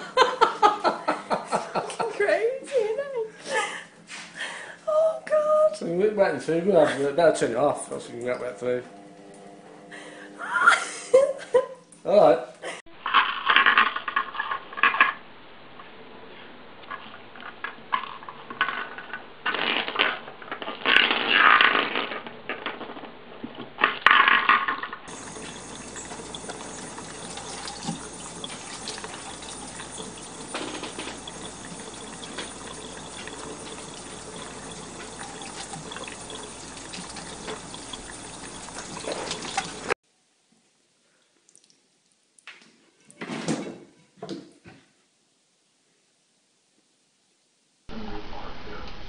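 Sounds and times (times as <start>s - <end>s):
intermittent louder sounds: 24.0s - 40.0s
tap running into metal sink: 25.1s - 39.9s.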